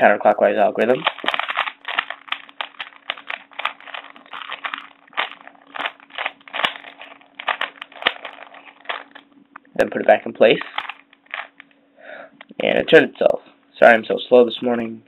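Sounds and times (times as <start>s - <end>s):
puzzle cube plastic clicks: 1.0s - 9.2s.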